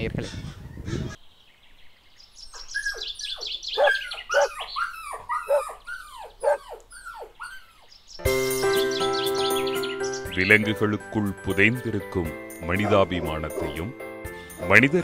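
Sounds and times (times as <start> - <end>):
puppies yelping: 2.6 - 8.0, 12.6 - 14.0.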